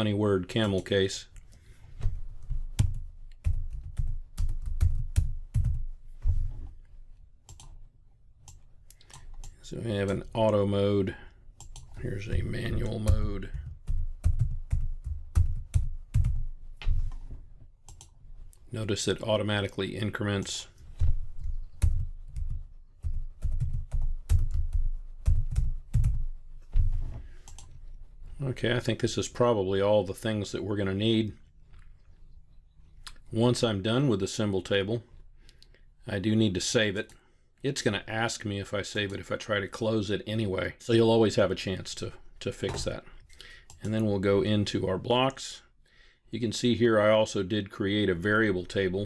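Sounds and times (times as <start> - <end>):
typing on computer keyboard: 2.8 - 5.8, 21.4 - 26.2.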